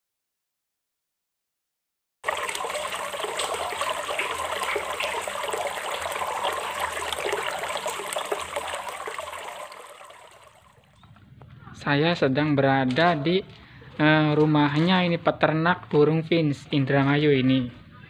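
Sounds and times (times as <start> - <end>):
running water trickling: 2.2 - 11.1.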